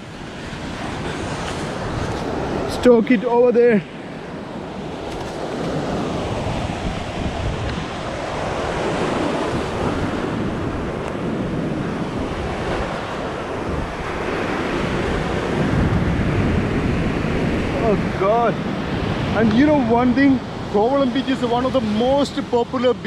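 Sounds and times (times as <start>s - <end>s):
ocean surf on beach: 0.0s - 23.0s
wind buffeting microphone: 0.0s - 23.0s.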